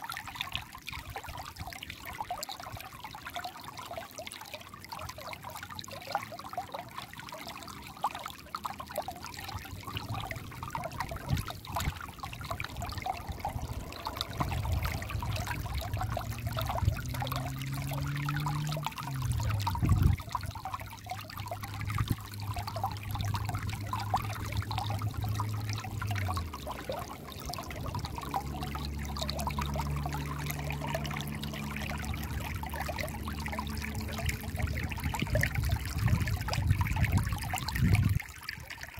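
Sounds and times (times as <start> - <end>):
stream babbling over pebbles: 0.0 - 38.9
low hum: 9.8 - 38.0.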